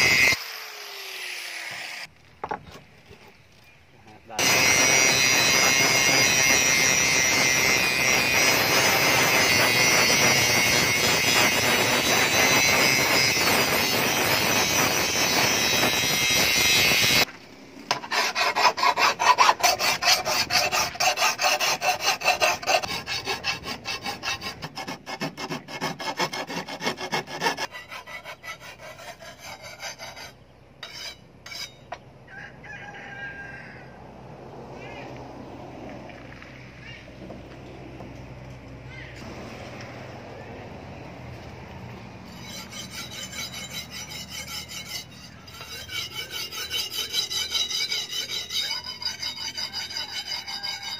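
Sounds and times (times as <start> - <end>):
angle grinder grinding steel: 0.0 - 2.1, 4.4 - 17.3, 17.9 - 31.8, 42.3 - 50.9
hand file rasping on blade: 17.9 - 31.8, 42.3 - 50.9.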